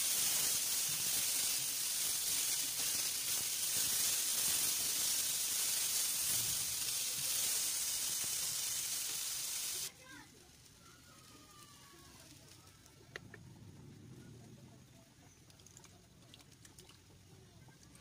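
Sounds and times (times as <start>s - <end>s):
sausages sizzling in frying pan: 0.0s - 12.8s.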